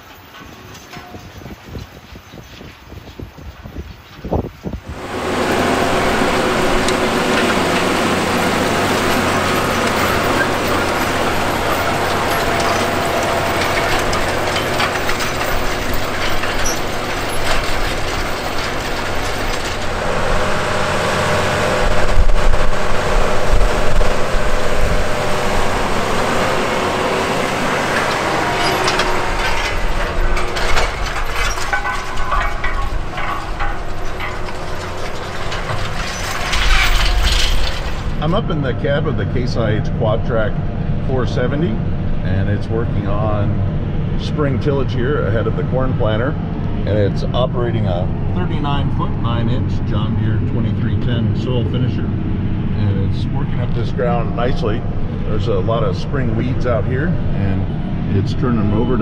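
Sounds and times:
tractor diesel engine under load: 4.8 - 59.0.

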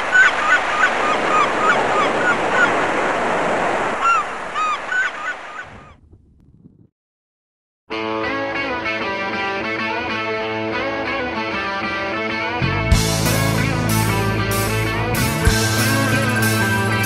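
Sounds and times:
gulls crying: 0.0 - 3.2
sea surf: 0.0 - 5.6, 13.2 - 17.0.

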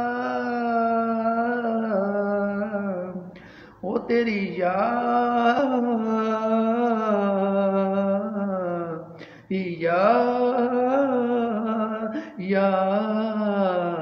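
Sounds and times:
singer breathing: 3.2 - 3.8, 9.1 - 9.5, 12.1 - 12.4.

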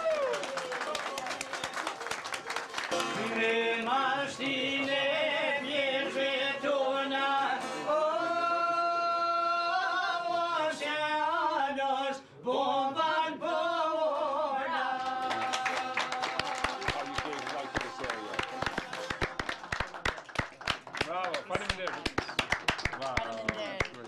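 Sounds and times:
men singing folk song: 3.0 - 16.2.

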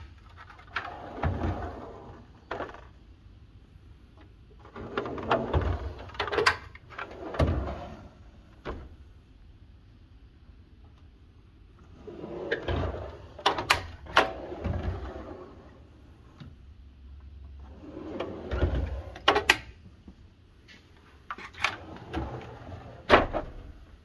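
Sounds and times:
metal drawers rolling on slides: 0.3 - 2.8, 4.6 - 8.6, 11.8 - 16.0, 17.6 - 19.6, 21.3 - 23.9.

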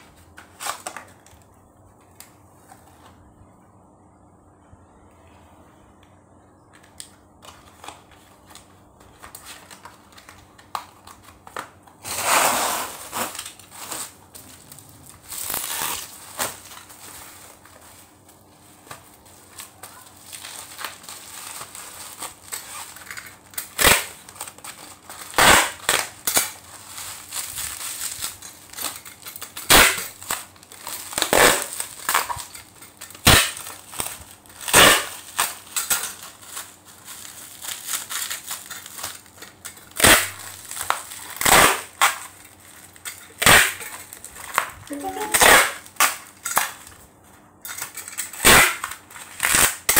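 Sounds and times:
bubble wrap crinkling: 0.0 - 3.4, 6.8 - 49.9
bubble wrap snapping: 0.1 - 2.4, 6.9 - 47.0, 47.8 - 49.9.

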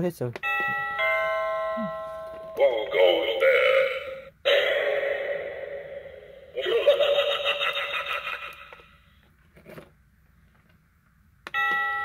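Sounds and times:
doorbell click: 0.4 - 2.6, 11.5 - 12.0
electronic doorbell chime: 0.4 - 2.6, 11.6 - 12.0
distorted spooky sound effect: 2.6 - 8.8.

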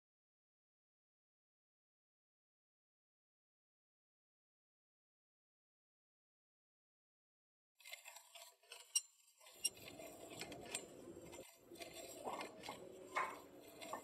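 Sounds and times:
wheelchair rolling on hard floor: 7.8 - 14.0.

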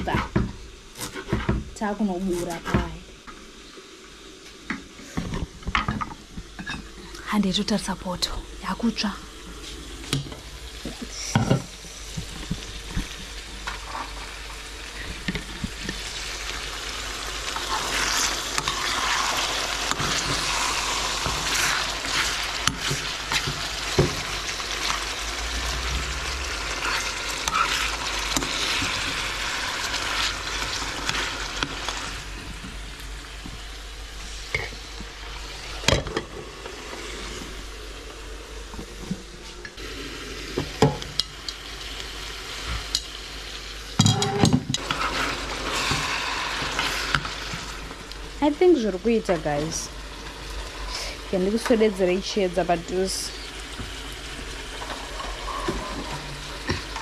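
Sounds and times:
lamb sizzling in a pan: 0.0 - 57.0
utensil stirring and knocking pan: 17.6 - 24.6.

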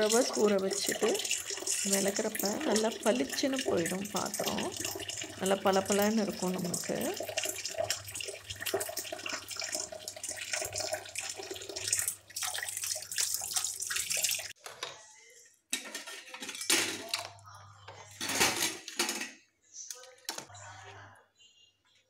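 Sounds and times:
tap water running into tub: 0.0 - 14.6.

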